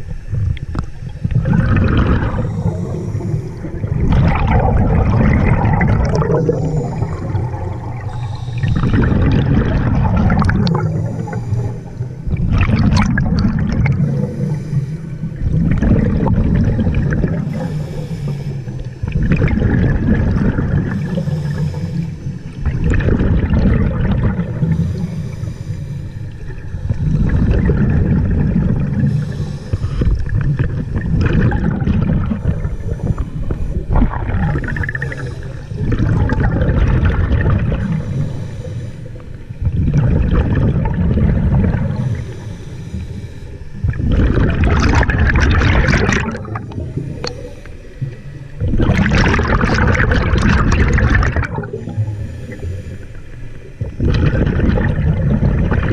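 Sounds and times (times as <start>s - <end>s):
bubbling exhaust: 0.0s - 25.6s, 26.3s - 38.8s, 39.6s - 43.1s, 43.8s - 55.9s
regulator hissing on inhale: 0.7s - 12.3s, 13.8s - 15.6s, 17.1s - 19.2s, 20.8s - 22.7s, 24.2s - 27.6s, 28.4s - 31.1s, 32.2s - 36.6s, 37.7s - 39.6s, 41.7s - 44.0s, 46.3s - 48.6s, 51.5s - 54.0s.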